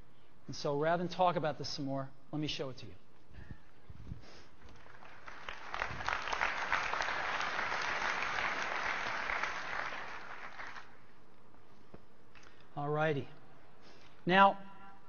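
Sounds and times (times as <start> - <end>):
large audience applauding: 4.6 - 11.0.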